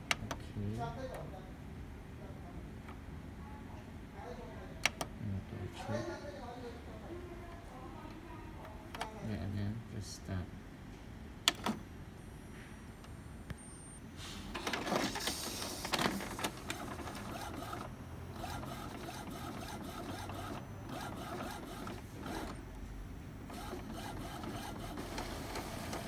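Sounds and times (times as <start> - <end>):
inkjet printer printing: 14.5 - 26.0.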